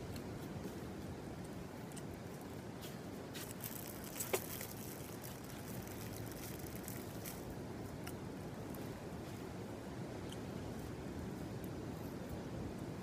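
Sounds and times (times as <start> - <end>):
low background noise: 0.0 - 13.0
plastic bag crinkling: 3.4 - 7.4.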